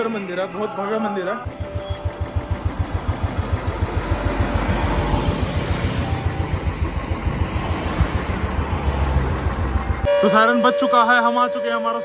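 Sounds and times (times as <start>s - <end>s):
motorcycle engine running: 1.4s - 10.1s.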